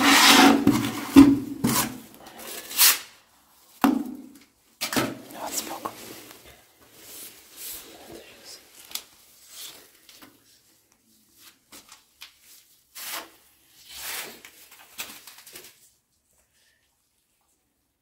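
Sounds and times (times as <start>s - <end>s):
tile scraping on wall: 0.0s - 3.1s, 12.9s - 15.1s.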